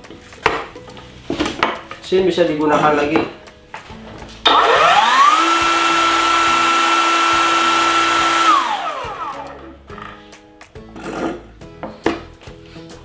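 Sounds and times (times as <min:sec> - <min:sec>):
circular saw whining: 0:04.5 - 0:09.6.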